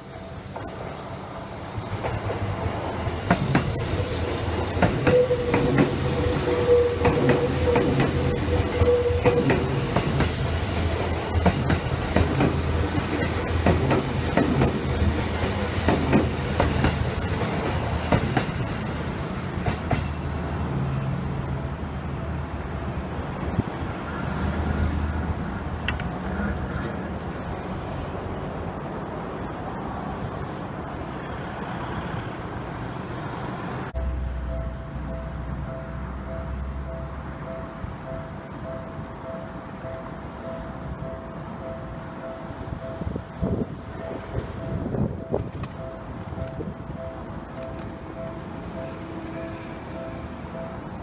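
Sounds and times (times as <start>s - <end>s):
train rumble: 0.0s - 51.0s
train wheels clicking over rail joints: 0.4s - 20.4s.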